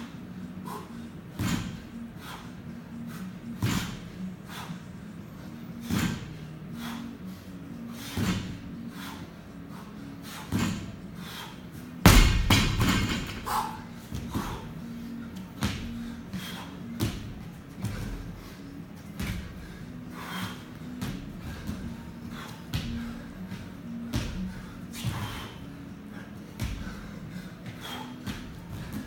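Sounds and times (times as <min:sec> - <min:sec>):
person breathing hard: 0:05.8 - 0:12.0, 0:13.2 - 0:16.9, 0:17.8 - 0:29.0
barbell dropped with thud: 0:12.1 - 0:13.5.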